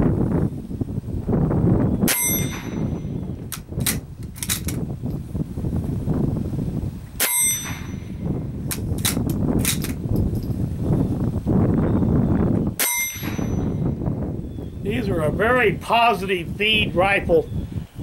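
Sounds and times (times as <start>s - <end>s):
short metallic ring: 2.1s - 3.2s, 7.2s - 8.2s, 12.8s - 13.9s
rifle bolt clicking: 3.5s - 4.8s.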